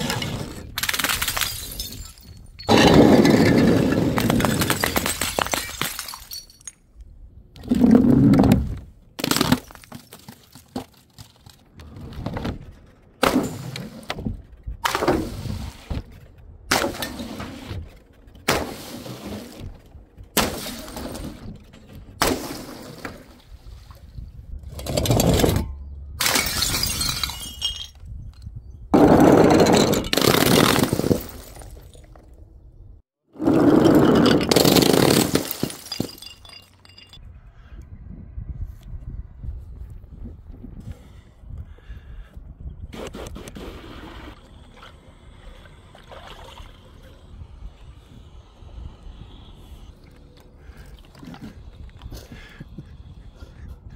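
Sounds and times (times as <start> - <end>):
glass bottles shattering: 0.6 - 6.9, 26.2 - 28.0, 33.8 - 37.2.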